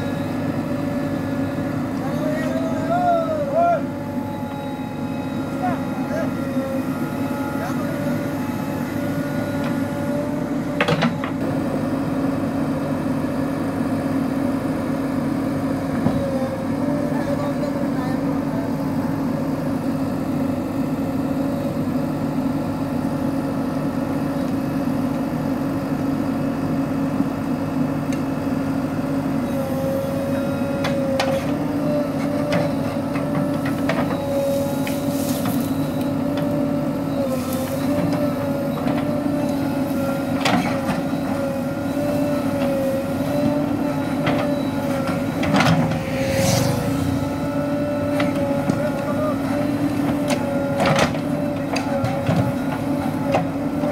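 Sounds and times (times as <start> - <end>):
diesel engine running: 0.0 - 53.9
steady whine: 38.7 - 52.0.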